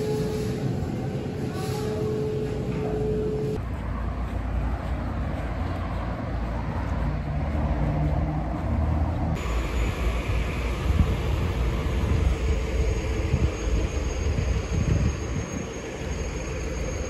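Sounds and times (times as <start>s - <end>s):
supermarket background hum: 0.0s - 13.6s
outdoor low rumble: 2.2s - 17.0s.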